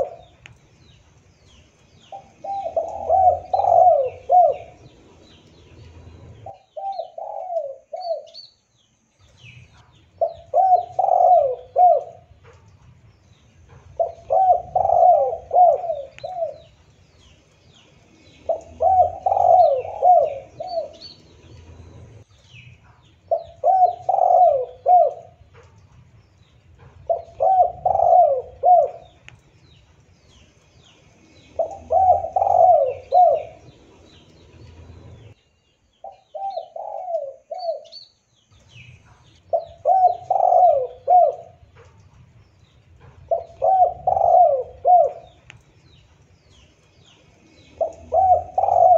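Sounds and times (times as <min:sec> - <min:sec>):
dove cooing: 0:00.0 - 0:00.4, 0:02.0 - 0:08.4, 0:09.7 - 0:12.6, 0:13.8 - 0:16.8, 0:18.2 - 0:22.2, 0:23.3 - 0:25.6, 0:26.8 - 0:29.3, 0:31.4 - 0:35.4, 0:36.1 - 0:38.0, 0:39.2 - 0:41.8, 0:43.1 - 0:45.5, 0:47.6 - 0:48.9
small birds chirping: 0:00.0 - 0:48.9.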